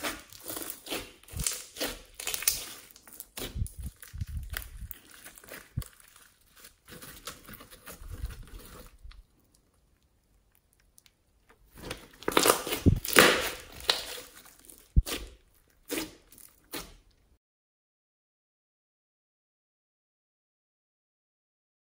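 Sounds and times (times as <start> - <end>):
slime crackling and popping: 0.0 - 7.4, 8.2 - 17.1.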